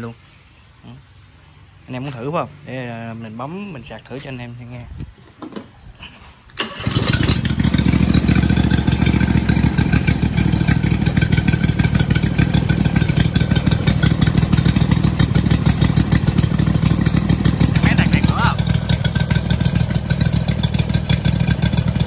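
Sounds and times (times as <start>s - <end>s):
electric starter cranking: 6.6s - 17.1s
engine running steadily: 6.6s - 22.0s.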